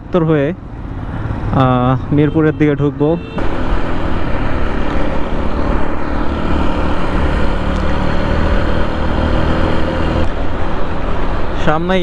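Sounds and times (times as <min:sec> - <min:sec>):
motorcycle engine accelerating: 0:03.4 - 0:10.3.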